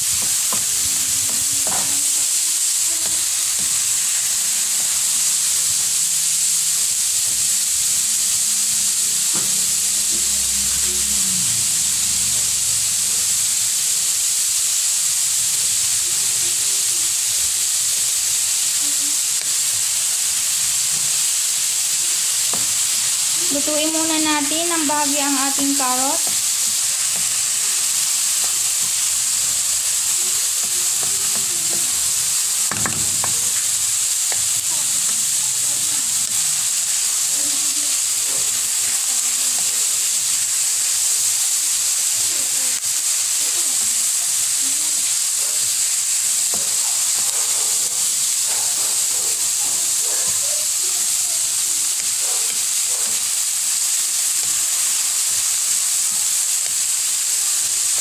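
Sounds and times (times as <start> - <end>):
vegetables sizzling in hot oil: 0.0 - 58.0
spatula scraping a pan: 24.7 - 36.5.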